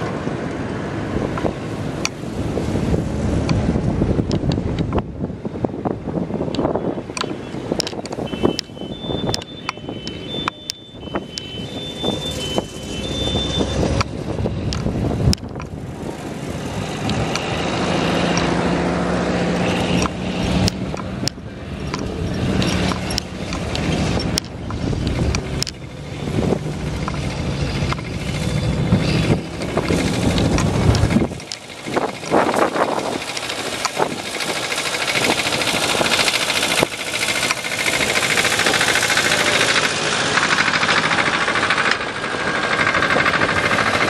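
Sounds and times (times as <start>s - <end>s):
old car and tractor engines passing: 0.0s - 44.0s
sharp clicks: 19.8s - 44.0s.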